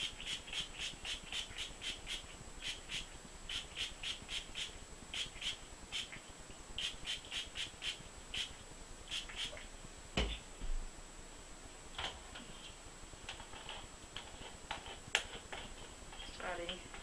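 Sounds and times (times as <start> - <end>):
spray bottle squirts: 9.1 - 9.6.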